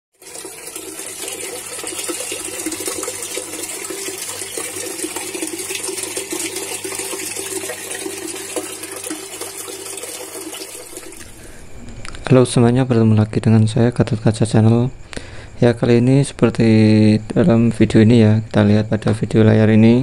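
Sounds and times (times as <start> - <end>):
pump humming: 0.2 - 13.2.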